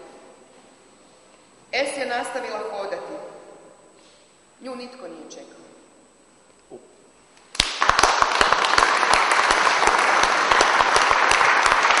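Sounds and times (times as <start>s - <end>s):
audience applause: 7.6s - 12.0s.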